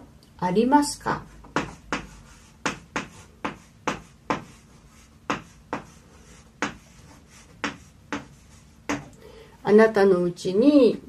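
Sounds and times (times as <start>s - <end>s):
chalk writing on blackboard: 1.3s - 9.1s.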